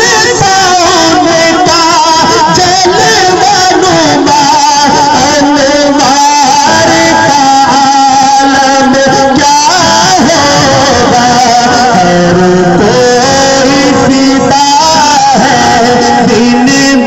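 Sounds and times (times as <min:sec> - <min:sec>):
man singing through microphone: 0:00.0 - 0:17.0.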